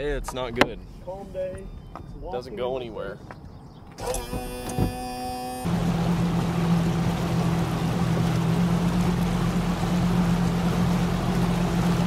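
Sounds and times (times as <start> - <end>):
boat motor running: 4.0 - 12.0.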